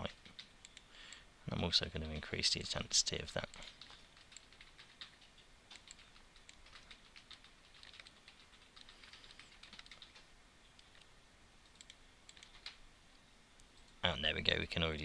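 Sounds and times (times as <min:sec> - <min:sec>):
computer mouse clicking: 0:00.2 - 0:00.9, 0:03.5 - 0:11.1, 0:11.7 - 0:12.8
computer keyboard clicking: 0:03.5 - 0:11.1, 0:11.7 - 0:12.8.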